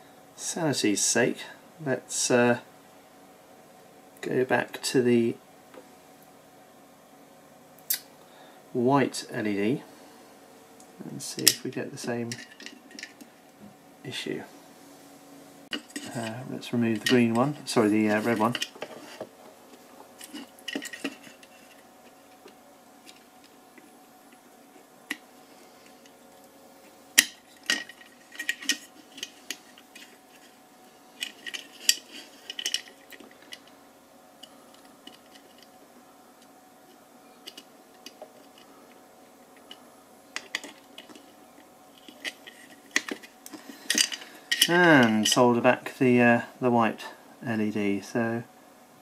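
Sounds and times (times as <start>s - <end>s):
faint low hum: 0.0s - 49.0s
small metallic clicks and taps: 37.4s - 38.7s.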